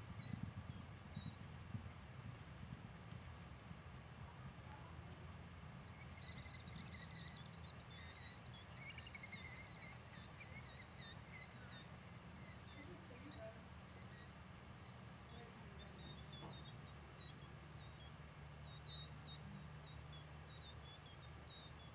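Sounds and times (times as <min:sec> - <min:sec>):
low steady rumble: 0:00.0 - 0:21.9
small bird chirping: 0:00.1 - 0:01.4, 0:05.8 - 0:21.9.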